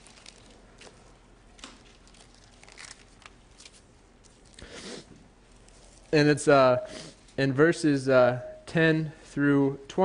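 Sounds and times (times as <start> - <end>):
pages turning: 0.0 - 4.7.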